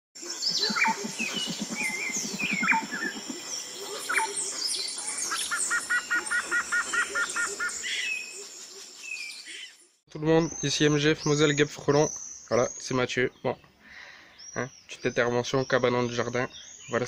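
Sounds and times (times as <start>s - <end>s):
low pulsing bird trill: 0.2s - 8.3s
birds chirping and calling: 0.2s - 17.0s.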